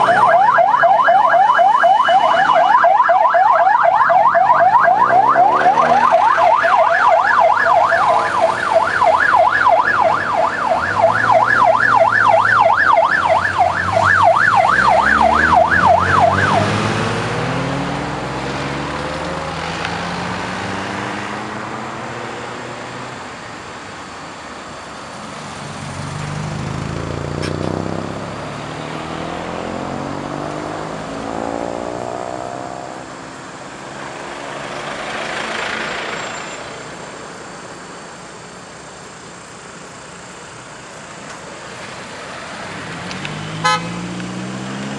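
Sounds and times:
electronic siren warbling: 0.0s - 17.0s
cars driving past revving: 4.5s - 23.8s, 24.9s - 37.4s, 41.6s - 44.9s.

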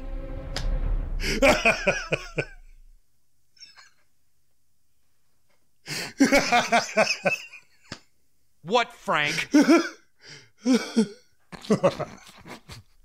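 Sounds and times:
low soundtrack music: 0.0s - 2.9s
man laughing hard: 1.2s - 2.6s, 6.1s - 7.6s, 9.3s - 10.0s, 10.6s - 12.8s.

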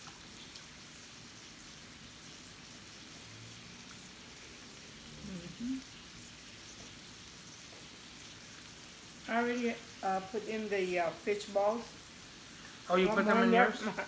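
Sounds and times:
food sizzling and simmering: 0.0s - 14.0s
person murmuring: 5.2s - 5.8s.

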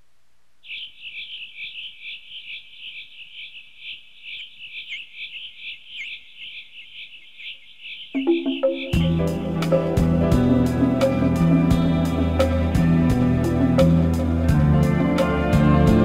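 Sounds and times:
high chirping of night animals: 0.6s - 10.0s
soft music with low notes: 8.3s - 16.0s.

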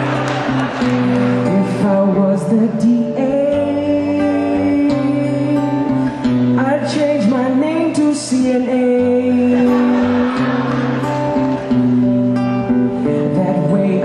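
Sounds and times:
strummed acoustic guitar: 0.0s - 14.0s
man singing: 1.4s - 10.6s, 13.2s - 14.0s.

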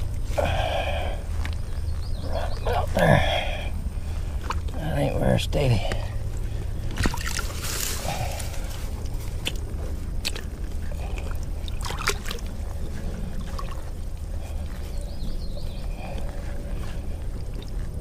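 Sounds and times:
low rumble: 0.0s - 18.0s
water sloshing and splashing: 6.0s - 14.6s.

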